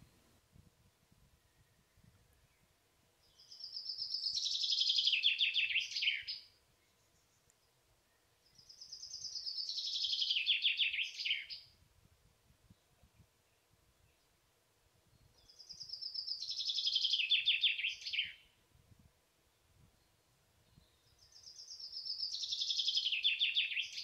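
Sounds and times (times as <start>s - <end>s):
songbird trilling: 8.6s - 11.6s.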